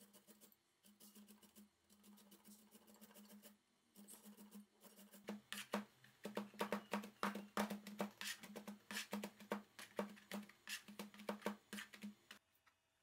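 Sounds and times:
knife chopping on plastic board: 5.2s - 12.4s.

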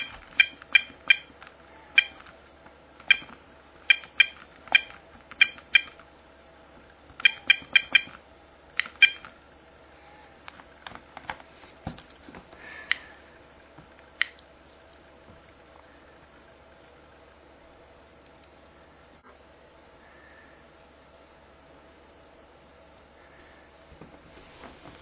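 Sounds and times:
geiger counter clicking: 0.0s - 2.4s, 3.0s - 6.1s, 7.1s - 8.2s, 8.8s - 9.4s, 14.2s - 14.5s.

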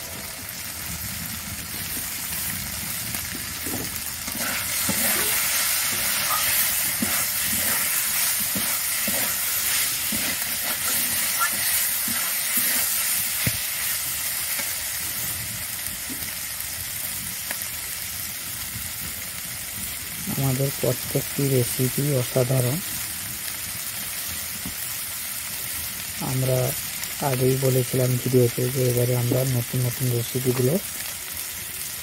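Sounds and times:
potatoes sizzling in a pan: 0.0s - 32.0s
metal spatula scraping pan: 3.7s - 13.6s.

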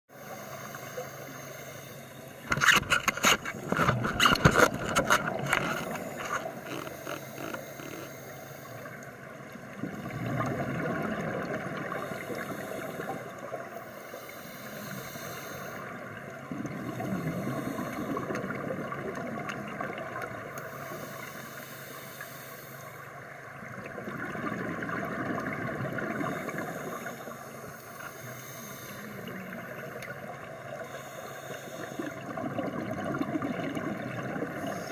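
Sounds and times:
steady underwater hiss: 0.1s - 34.9s
crackling clicks: 2.4s - 9.1s, 29.8s - 30.2s
diver exhaling bubbles: 23.8s - 27.2s, 31.9s - 34.9s.

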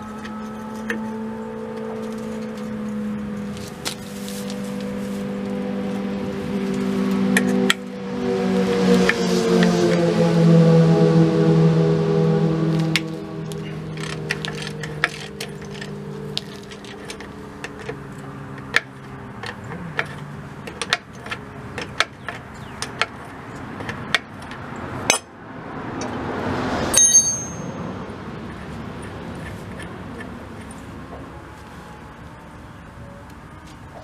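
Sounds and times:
metal tool clanging: 25.1s - 25.3s, 27.0s - 27.9s.

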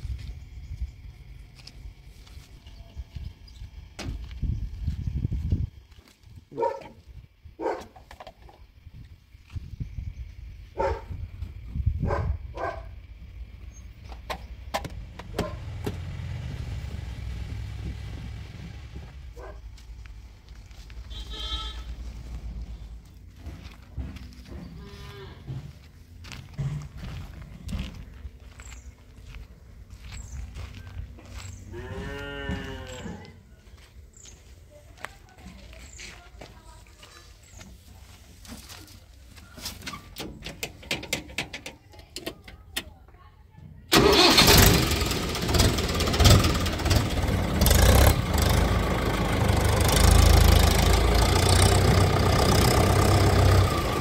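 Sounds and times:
tractor diesel engine idling: 13.0s - 24.8s, 43.9s - 54.0s
sharp clicks and knocks: 14.1s - 16.0s, 39.8s - 42.9s.

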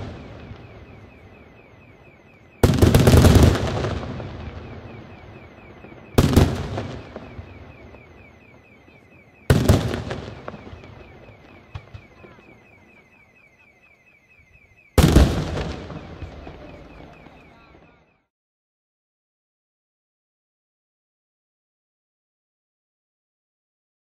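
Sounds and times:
firework shells bursting with bangs: 0.0s - 8.3s, 9.4s - 12.8s.

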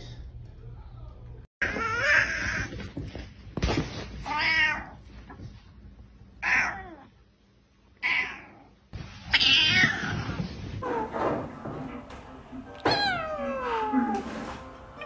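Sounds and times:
cat meowing: 12.8s - 14.2s.

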